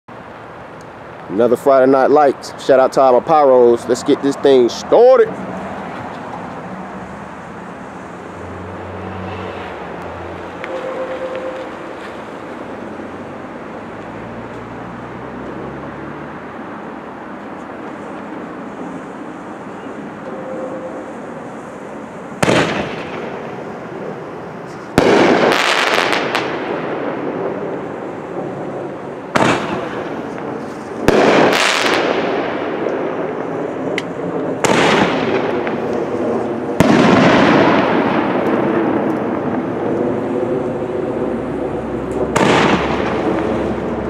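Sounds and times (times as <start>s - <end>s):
fireworks bangs: 22.4s - 24.1s, 24.8s - 33.7s, 34.5s - 40.4s, 42.0s - 44.0s.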